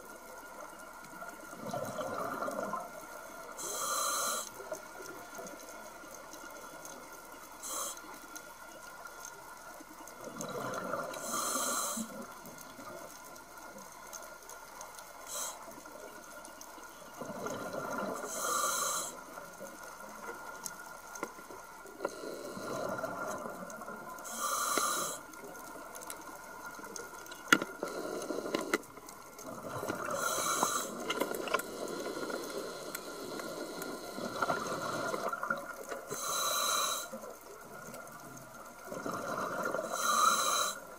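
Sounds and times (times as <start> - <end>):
diver breathing through a regulator: 3.5 - 4.8, 7.6 - 8.2, 10.5 - 12.3, 15.3 - 15.8, 17.3 - 19.4, 22.0 - 23.6, 24.2 - 25.3, 27.6 - 37.3, 38.9 - 40.9.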